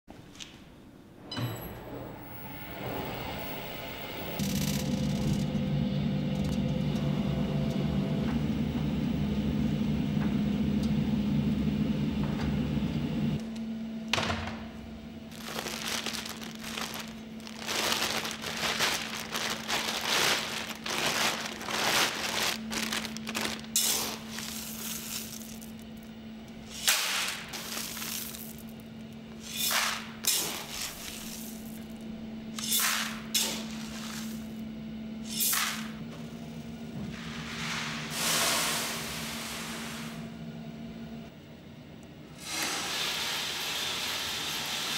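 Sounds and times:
machine hum: 0:01.1 - 0:42.6
gas burner roaring: 0:01.9 - 0:13.4, 0:15.2 - 0:41.3
plastic bag of beans rustling: 0:15.3 - 0:26.1, 0:27.1 - 0:28.8, 0:29.9 - 0:32.0.

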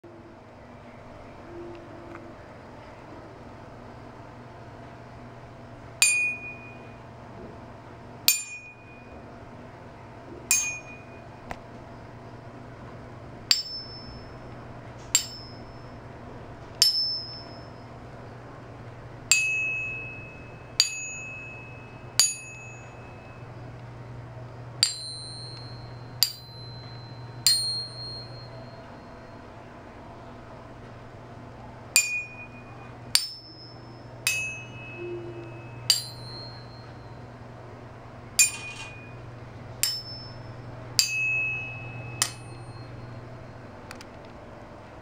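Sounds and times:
metal bars ringing when tapped: 0:06.0 - 0:07.0, 0:08.3 - 0:09.2, 0:10.5 - 0:11.4, 0:13.5 - 0:16.0, 0:16.8 - 0:17.9, 0:19.3 - 0:23.6, 0:24.8 - 0:29.4, 0:32.0 - 0:37.2, 0:38.4 - 0:43.2.

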